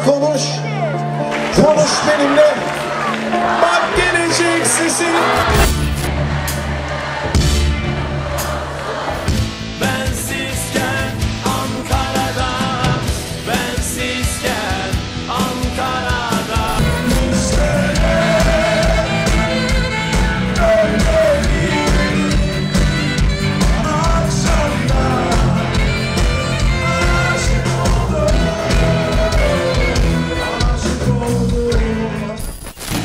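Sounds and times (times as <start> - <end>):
rock band playing: 0.0 - 32.4
person singing: 9.8 - 32.5.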